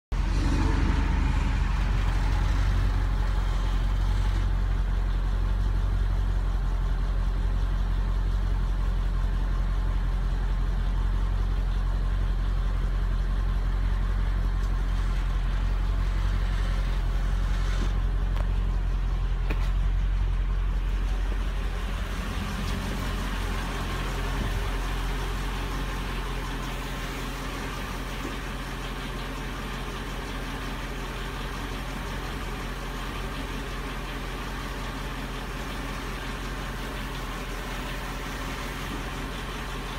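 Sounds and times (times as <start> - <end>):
car engine idling: 0.0 - 39.9.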